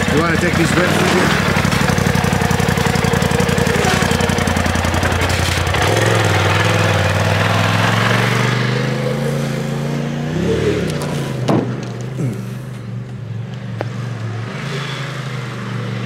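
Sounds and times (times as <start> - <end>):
vehicle engine running: 0.0 - 14.5.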